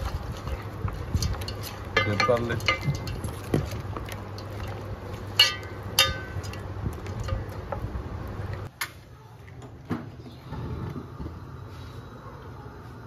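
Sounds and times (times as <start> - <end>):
hand mixing wet marinade: 0.0 - 8.7
light clinks against metal bowl: 1.2 - 3.5.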